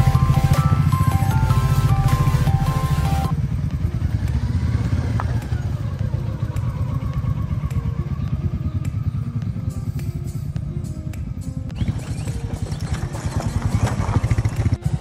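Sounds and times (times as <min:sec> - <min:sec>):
background music: 0:00.0 - 0:15.0
motorcycle engines thrumming: 0:00.0 - 0:15.0.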